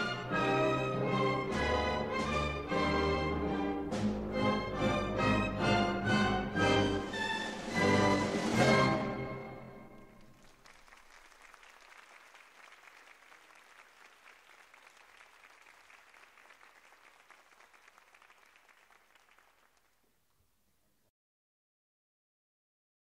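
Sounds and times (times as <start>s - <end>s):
audience applause: 9.9s - 20.0s.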